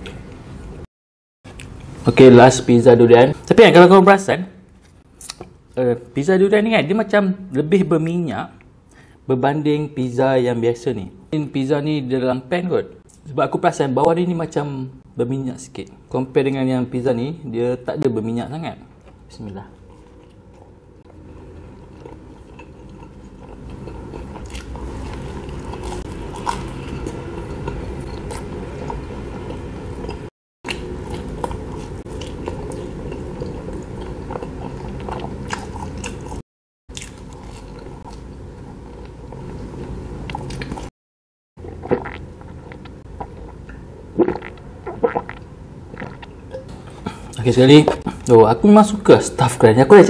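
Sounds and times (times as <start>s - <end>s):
close chewing with crust crunches: 19.0s - 40.9s
gulps of a drink: 44.2s - 47.4s.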